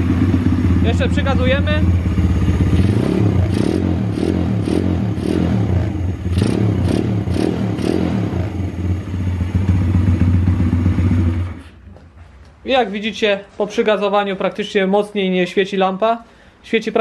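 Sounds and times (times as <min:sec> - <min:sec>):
motorbike engine revving and idling: 0:00.0 - 0:11.8.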